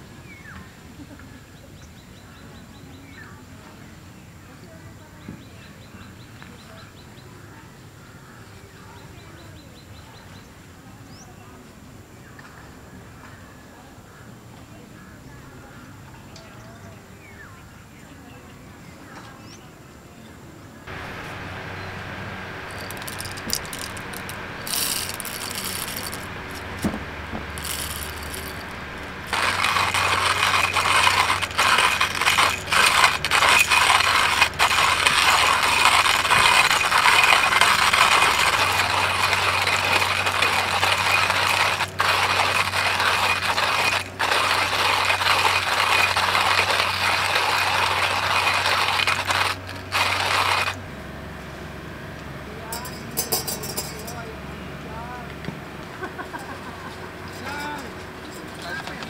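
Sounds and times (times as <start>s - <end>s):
coffee beans rattling: 20.9s - 50.8s
grinder burrs crunching beans: 20.9s - 50.8s.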